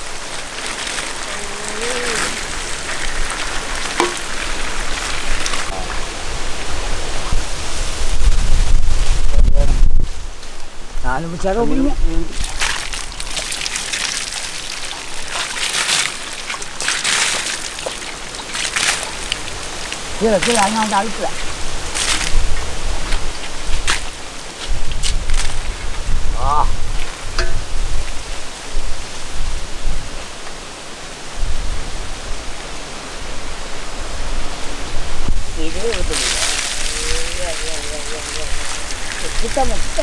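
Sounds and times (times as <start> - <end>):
water splattering onto ground: 0.0 - 6.0, 12.3 - 26.0, 26.8 - 28.6, 35.6 - 40.0
water pouring and splashing: 0.0 - 9.1, 12.0 - 30.2, 34.6 - 40.0.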